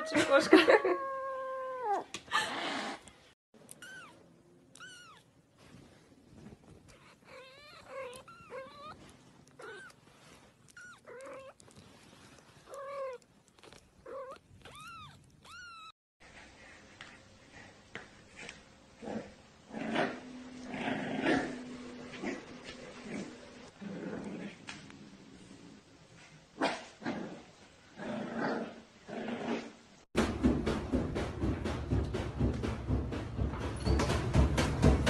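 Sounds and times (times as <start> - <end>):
cat meowing: 3.7 - 5.3, 6.9 - 10.0, 10.7 - 11.6, 14.0 - 15.9
kitten yowling: 3.8 - 5.2.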